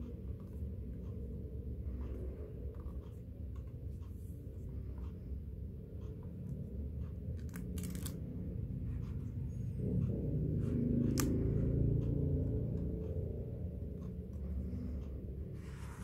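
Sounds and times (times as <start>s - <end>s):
steady low background sound: 0.0s - 16.0s
card pages rustling: 7.4s - 8.2s.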